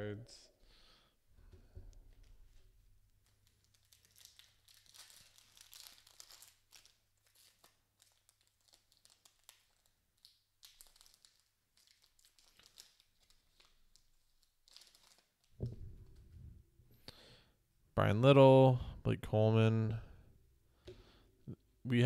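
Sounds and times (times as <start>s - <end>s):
foil wrapper crinkling: 3.2s - 15.6s.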